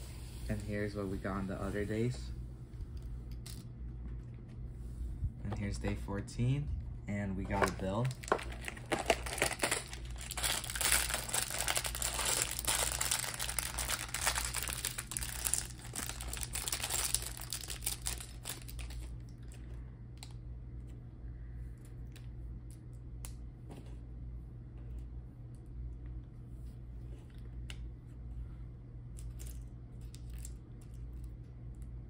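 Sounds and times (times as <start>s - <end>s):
plastic bag crinkling: 7.5s - 19.6s.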